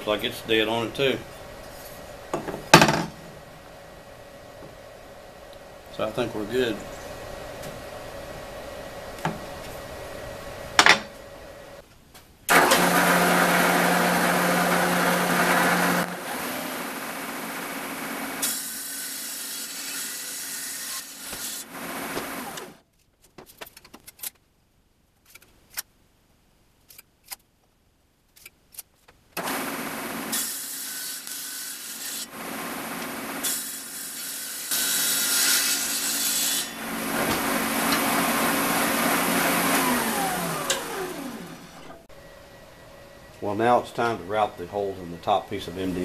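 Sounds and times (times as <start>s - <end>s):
table saw cutting board: 0.0s - 3.2s, 10.8s - 11.2s, 12.5s - 22.8s, 29.4s - 42.1s.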